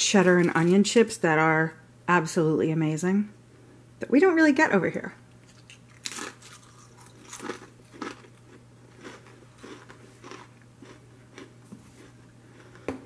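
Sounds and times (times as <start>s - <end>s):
person chewing crisps: 5.4s - 12.9s.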